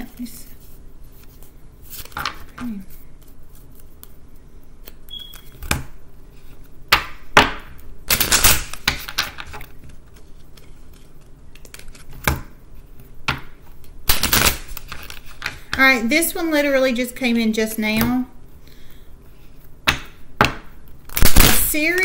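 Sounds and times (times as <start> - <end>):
cards being shuffled: 0.5 - 6.7, 8.1 - 13.1.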